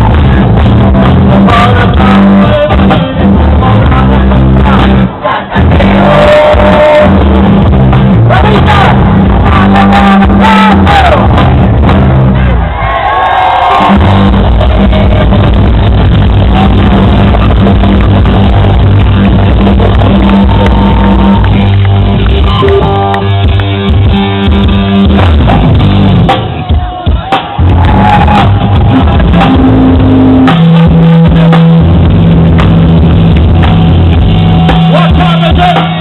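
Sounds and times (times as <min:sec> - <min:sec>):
loud live rock band: 0:00.0 - 0:36.0
crowd shouting along: 0:12.3 - 0:15.6, 0:19.8 - 0:21.7, 0:26.3 - 0:30.1.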